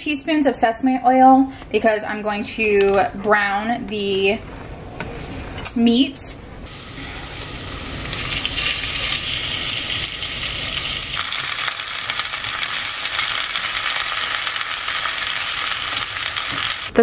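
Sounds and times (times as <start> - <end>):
oil sizzling in a pot: 6.7 - 17.0.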